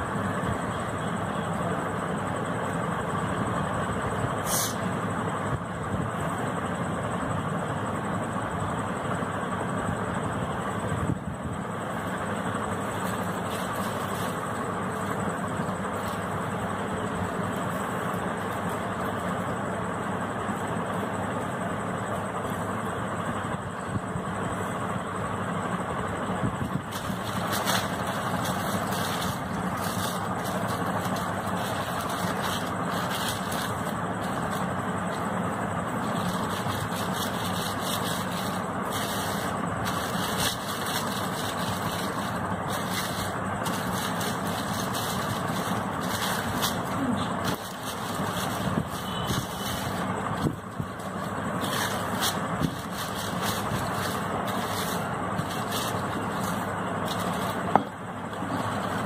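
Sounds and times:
machine drone: 0:00.0 - 0:59.0
plastic sheet crinkling: 0:11.9 - 0:19.5, 0:26.7 - 0:59.0.

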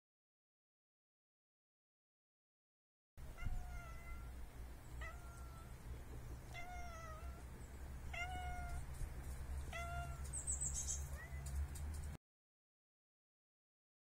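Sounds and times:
cat meowing: 0:03.3 - 0:04.4, 0:05.0 - 0:05.8, 0:06.5 - 0:07.5, 0:08.1 - 0:09.0, 0:09.7 - 0:11.6.

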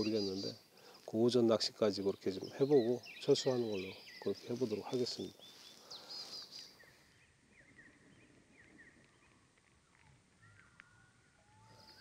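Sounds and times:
bird chirps: 0:00.0 - 0:12.0
whistled bird notes: 0:02.2 - 0:09.5, 0:10.4 - 0:12.0.

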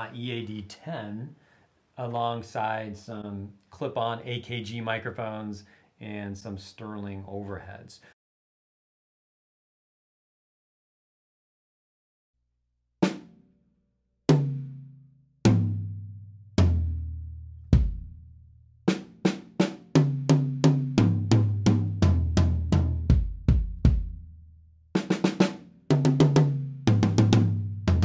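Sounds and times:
drum kit played solo: 0:13.0 - 0:13.3, 0:14.3 - 0:14.8, 0:15.5 - 0:16.0, 0:16.6 - 0:17.1, 0:17.7 - 0:18.1, 0:18.9 - 0:24.2, 0:25.0 - 0:28.0.

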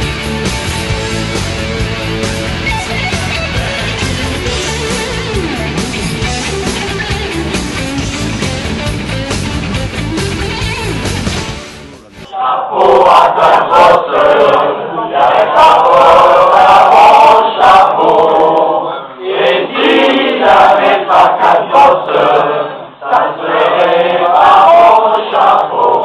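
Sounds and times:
group of voices chanting: 0:12.2 - 0:26.0.

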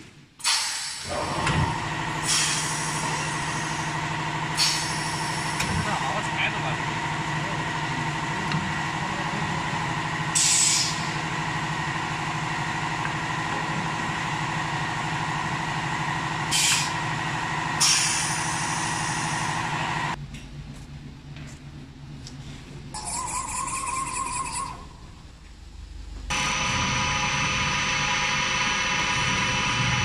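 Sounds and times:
compressed air hisses: 0:00.4 - 0:01.1, 0:10.4 - 0:11.1
steady machine hum: 0:00.9 - 0:30.0.

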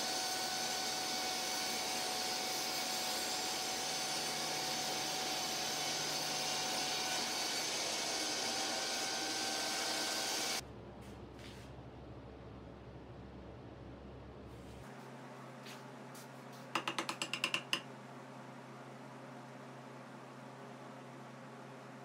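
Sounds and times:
table saw whining: 0:00.0 - 0:10.6.

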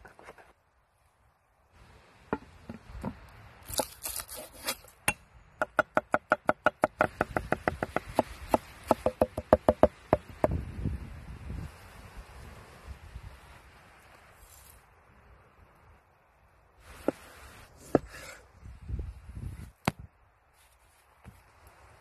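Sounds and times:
cleaver chopping on wooden board: 0:05.6 - 0:10.6.

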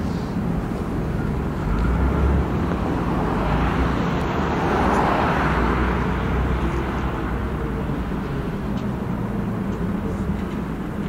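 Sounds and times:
road traffic rumble: 0:00.0 - 0:11.0
vehicle passing close by: 0:01.2 - 0:09.7.

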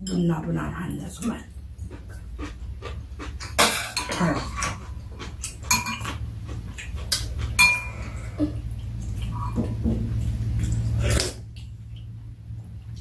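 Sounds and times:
steady low hum: 0:00.0 - 0:13.0
utensils clinking on ceramic bowls: 0:03.7 - 0:06.2, 0:07.5 - 0:08.1.

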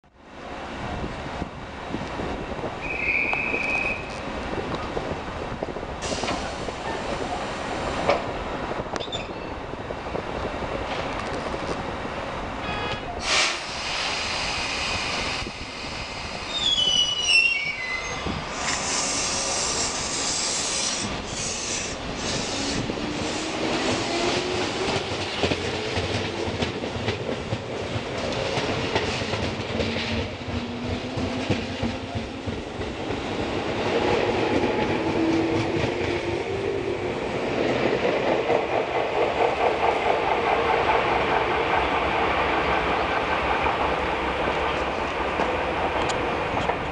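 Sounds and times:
hiss of air: 0:06.0 - 0:07.9, 0:13.2 - 0:16.7, 0:18.4 - 0:24.0
train wheels clattering on rail joints: 0:20.7 - 0:36.6, 0:37.7 - 0:46.9.

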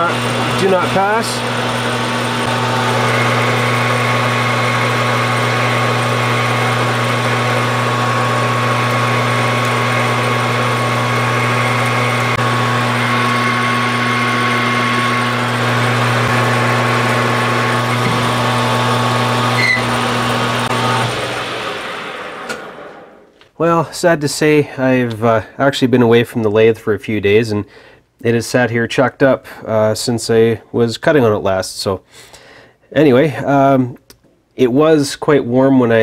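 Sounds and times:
tool turning steel bar: 0:00.0 - 0:21.2
metal lathe motor hum and whine: 0:00.0 - 0:22.7.

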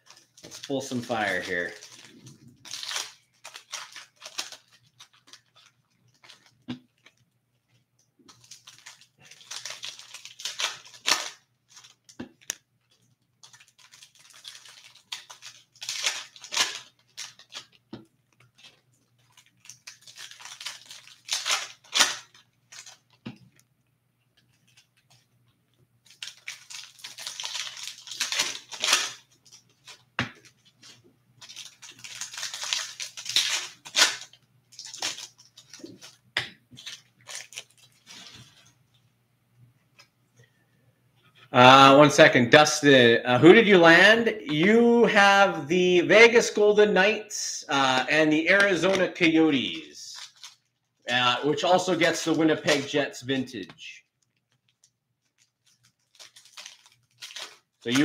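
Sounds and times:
foil packs tearing and crinkling: 0:00.0 - 0:07.2, 0:08.3 - 0:12.5, 0:13.4 - 0:17.8, 0:18.5 - 0:23.2, 0:26.0 - 0:38.7, 0:48.3 - 0:53.0, 0:54.2 - 0:58.0.

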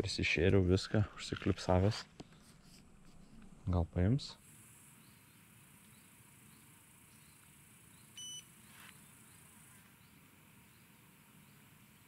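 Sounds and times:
electronic bite alarm beep: 0:08.2 - 0:08.5.

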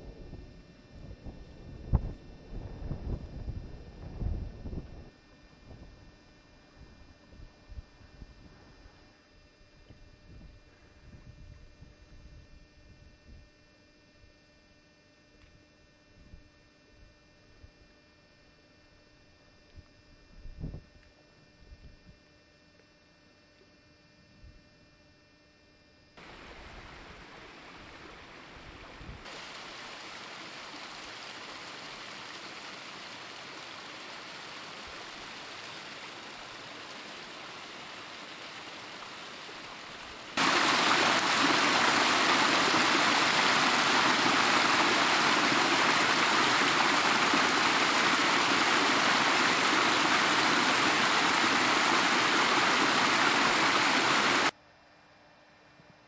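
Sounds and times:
stream running over rocks: 0:26.2 - 0:54.5.

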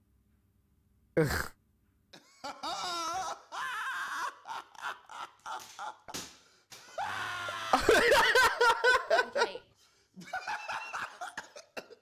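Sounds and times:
loud laughter: 0:02.2 - 0:09.6, 0:10.2 - 0:12.0.

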